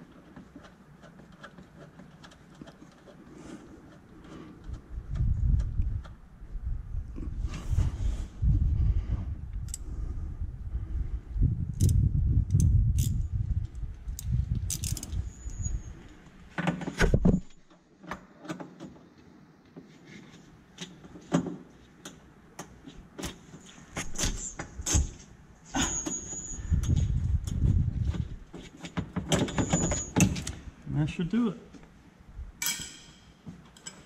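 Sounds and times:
ratchet wrench clicking: 0:11.8 - 0:13.2, 0:14.2 - 0:15.6.

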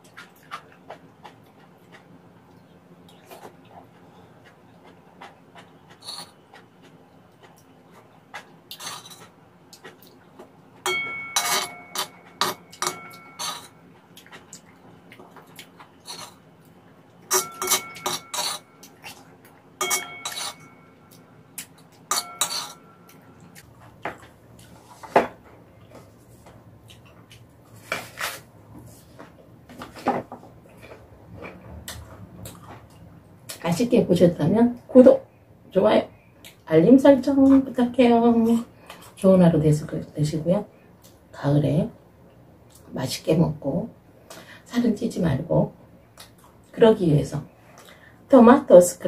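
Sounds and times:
metal spoon scraping a pan: 0:08.7 - 0:09.2, 0:10.9 - 0:13.8, 0:16.1 - 0:16.4, 0:17.3 - 0:18.8, 0:19.8 - 0:20.8, 0:22.1 - 0:22.9.

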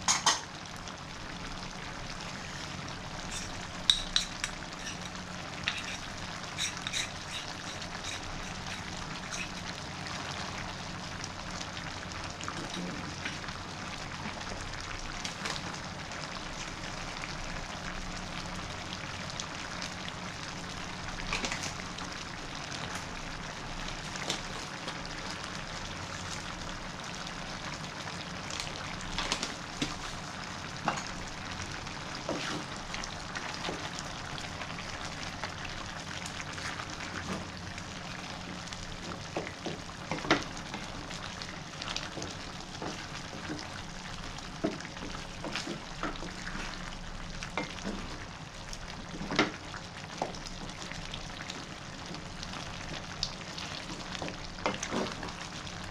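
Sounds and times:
gravy simmering with pops: 0:00.0 - 0:55.9.

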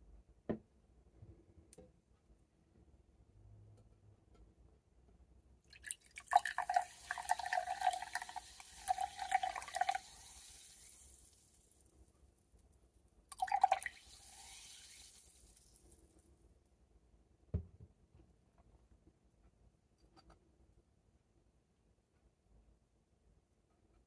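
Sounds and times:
soda glugging from bottle: 0:05.8 - 0:10.1, 0:13.3 - 0:14.0
fizzing hiss of bubbles: 0:05.8 - 0:11.9, 0:13.3 - 0:16.0.

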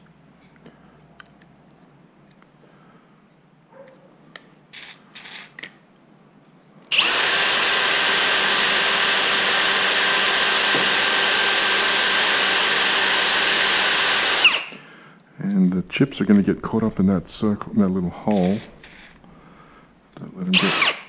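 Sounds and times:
drill drilling through steel: 0:06.9 - 0:14.8, 0:20.5 - 0:21.0.

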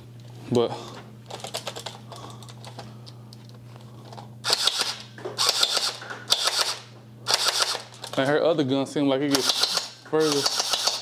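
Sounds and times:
steady low hum: 0:00.0 - 0:11.0
toy blaster rapid clicking: 0:04.5 - 0:07.9, 0:09.3 - 0:11.0.

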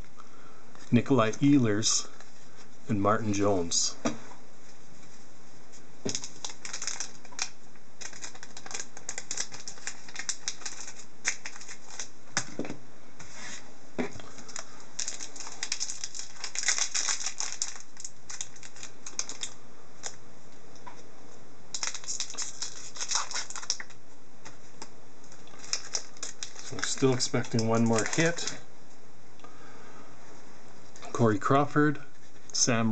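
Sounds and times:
trading cards clicking and rustling: 0:06.1 - 0:12.5, 0:14.4 - 0:20.2, 0:21.8 - 0:24.6, 0:25.6 - 0:28.6.

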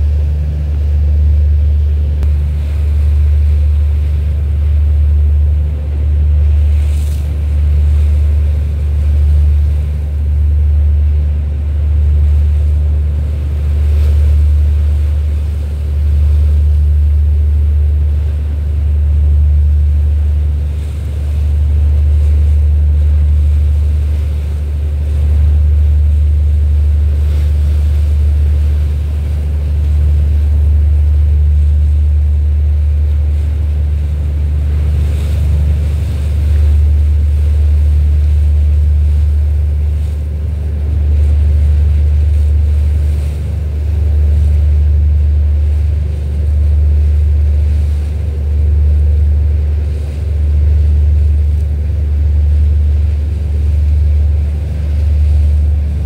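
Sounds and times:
boat engine drone: 0:00.0 - 0:56.0.

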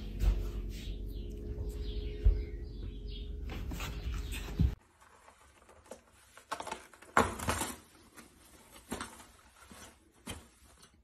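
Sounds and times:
toilet paper rustling: 0:03.6 - 0:11.0.

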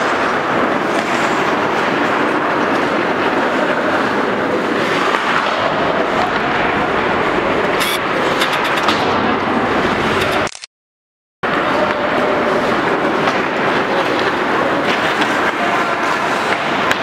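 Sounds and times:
skate blades scraping ice: 0:00.0 - 0:09.1
hockey sticks and puck clacking: 0:00.0 - 0:10.5, 0:11.5 - 0:17.0.

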